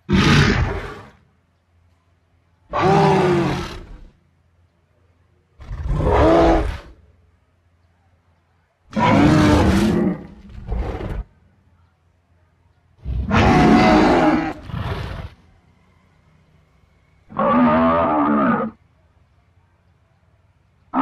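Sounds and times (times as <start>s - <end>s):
dinosaur roars: 2.7s - 4.1s, 5.6s - 7.0s, 8.9s - 11.3s, 13.0s - 15.4s, 17.3s - 18.8s.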